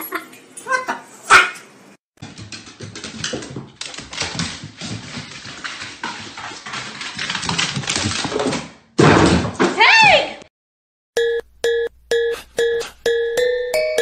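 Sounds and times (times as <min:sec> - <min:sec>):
dog claws clattering on wooden stairs: 0:02.2 - 0:08.7.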